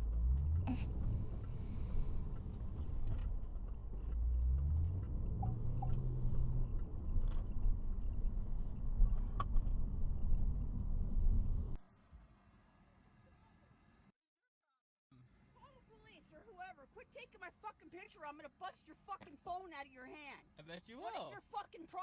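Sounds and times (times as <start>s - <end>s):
car engine accelerating: 0.0s - 11.8s
road noise inside car: 0.0s - 11.8s.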